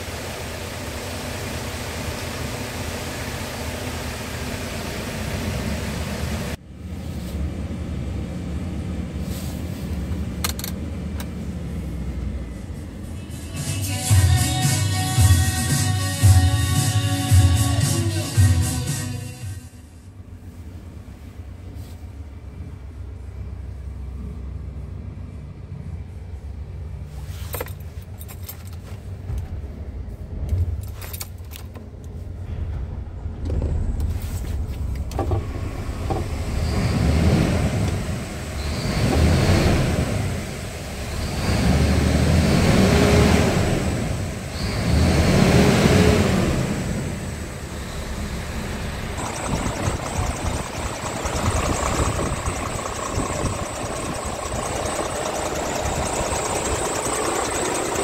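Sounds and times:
diesel engine idling and revving: 0:00.0 - 0:19.1, 0:32.4 - 0:58.0.

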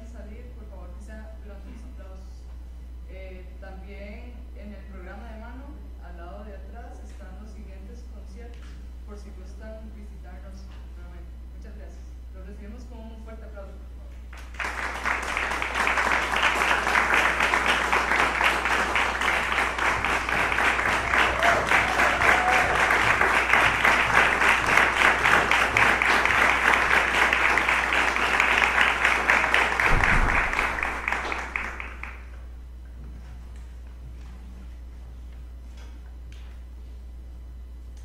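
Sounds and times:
audience applauding: 0:14.4 - 0:32.4.

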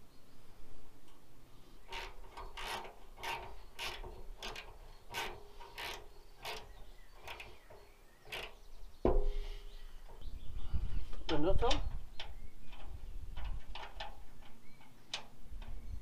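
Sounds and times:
squeaky scraping metal strokes: 0:01.7 - 0:10.4
metal knock: 0:09.0 - 0:09.4.

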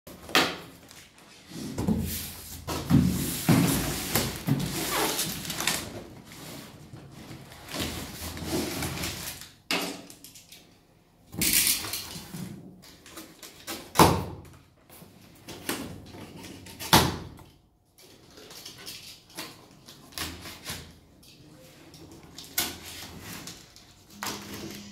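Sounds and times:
cardboard and strapping rustling: 0:00.7 - 0:09.6.

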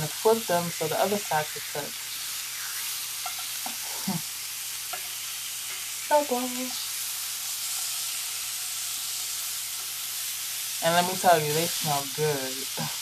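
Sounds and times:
chicken sizzling in a skillet: 0:00.0 - 0:13.0
utensil scraping a pan: 0:03.2 - 0:03.9.

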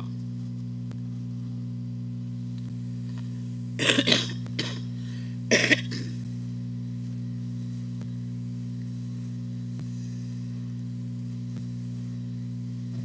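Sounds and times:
electrical mains hum: 0:00.0 - 0:13.0
person coughing: 0:03.8 - 0:06.2.

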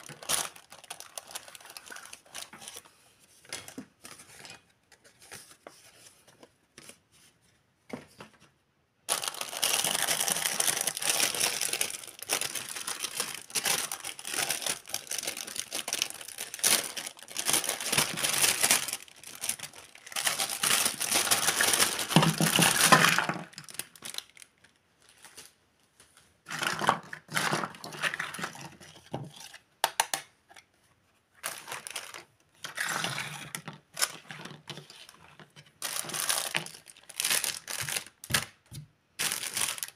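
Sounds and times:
plastic bag crinkling: 0:00.0 - 0:04.7, 0:09.1 - 0:25.6, 0:31.4 - 0:39.9.

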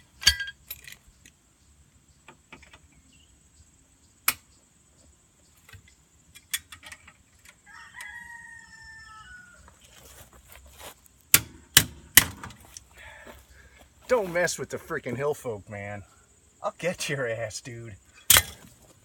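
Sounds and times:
rooster crowing: 0:07.6 - 0:09.8
metal clicks of hand tools: 0:18.3 - 0:18.6
sharp metal clink: 0:18.3 - 0:18.6.

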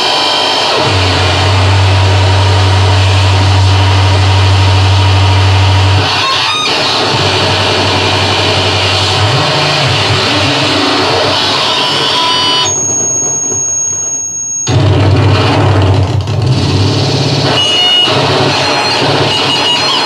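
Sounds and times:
harsh distorted synthesizer noise: 0:00.0 - 0:20.0
heavy low hum: 0:00.8 - 0:06.1, 0:06.8 - 0:13.9
thin high whistle: 0:11.7 - 0:14.8.

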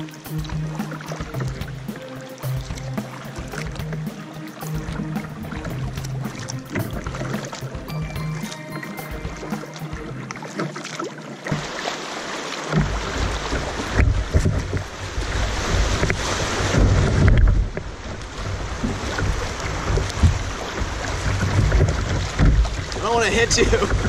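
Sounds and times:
paddle dipping in water: 0:00.0 - 0:24.0
water dripping off paddle: 0:00.0 - 0:24.0
water rushing over rocks: 0:00.0 - 0:24.0
wind buffeting microphone: 0:12.9 - 0:24.0.

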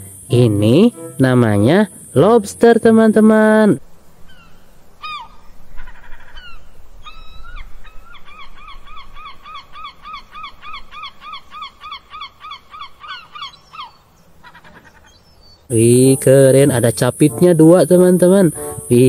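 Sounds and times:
bird calling: 0:04.2 - 0:16.2.

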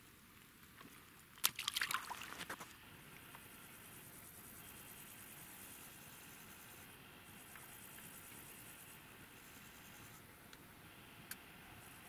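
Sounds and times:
faint outdoor hiss: 0:00.0 - 0:12.0.

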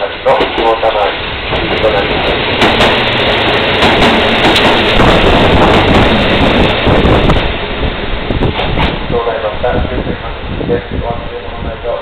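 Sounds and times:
diesel railcar rolling past: 0:00.0 - 0:12.0
wheels clicking over rail joints: 0:01.5 - 0:07.6.

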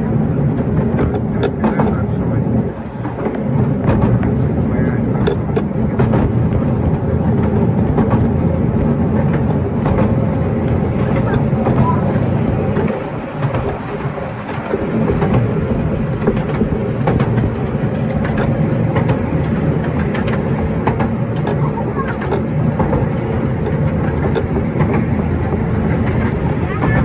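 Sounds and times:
train rolling rumble: 0:00.0 - 0:27.0
wheels clicking over rail joints: 0:00.0 - 0:27.0.

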